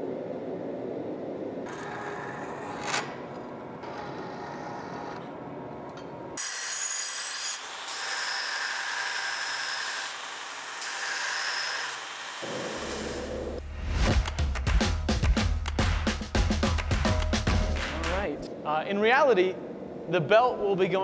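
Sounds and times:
band saw cutting steel rod: 6.4s - 13.6s
belt grinder grinding steel: 6.4s - 13.6s.

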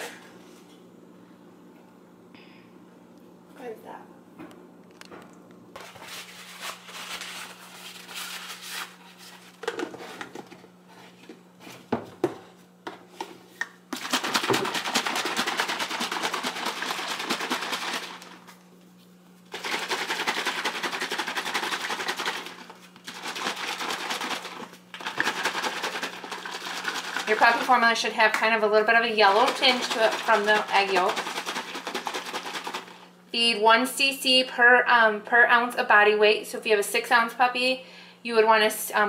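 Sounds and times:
shaker cup rattling and sloshing: 13.9s - 18.6s, 19.4s - 33.0s.

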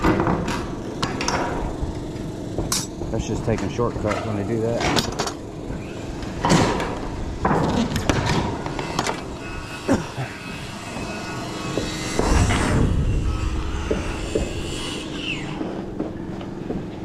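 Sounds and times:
low rumble: 12.1s - 15.1s.

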